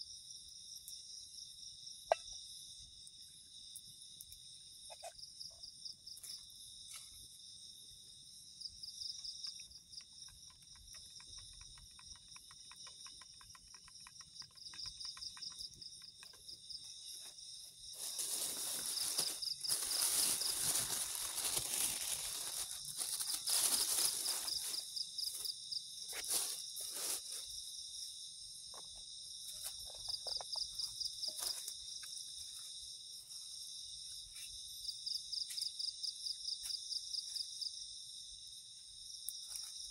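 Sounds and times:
crickets chirping: 0.0s - 39.9s
plastic bag crinkling: 18.0s - 25.0s.

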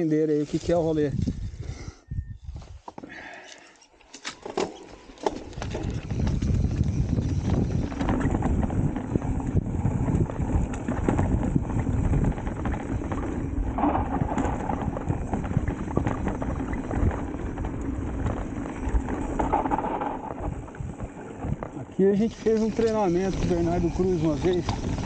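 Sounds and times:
bike knocking and rattling: 4.2s - 25.0s
tyres rumbling over rough trail: 5.0s - 25.0s.

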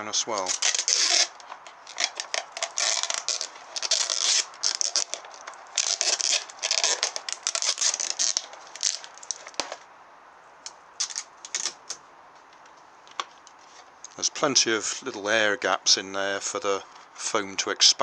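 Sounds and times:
adhesive tape ripping off roll: 0.0s - 9.9s, 11.0s - 12.0s.

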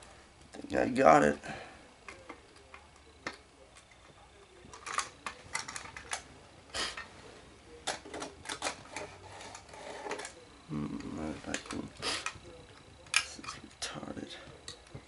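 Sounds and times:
toy train parts clattering: 2.1s - 6.2s, 7.8s - 12.4s, 13.0s - 13.9s.

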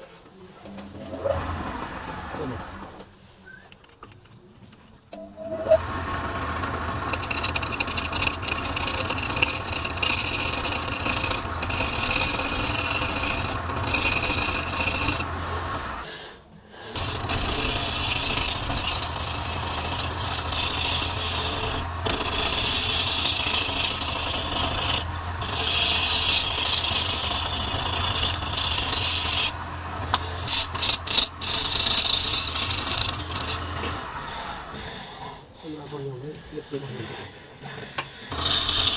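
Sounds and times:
chisel shaving wood: 5.2s - 16.2s, 16.8s - 36.8s, 37.6s - 38.9s
wood lathe humming: 5.2s - 16.2s, 16.9s - 35.1s, 38.2s - 38.9s.

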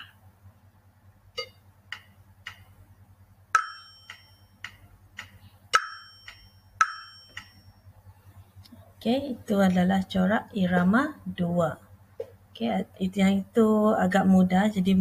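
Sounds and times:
ticking guide beat: 1.3s - 2.8s, 3.5s - 7.8s
metal triangle ringing: 3.6s - 4.6s, 5.7s - 7.9s.

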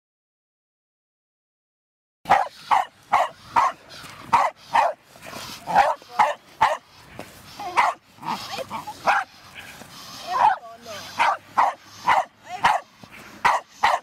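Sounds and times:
dog barking rapidly: 2.3s - 5.0s, 5.7s - 6.8s, 7.7s - 9.3s, 10.3s - 14.0s.

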